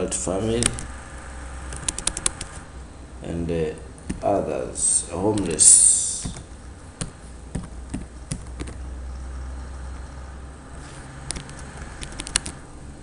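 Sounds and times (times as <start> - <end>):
low steady hum: 0.0 - 13.0
keyboard keystrokes clicking: 1.7 - 2.6, 6.2 - 8.8, 11.3 - 12.6.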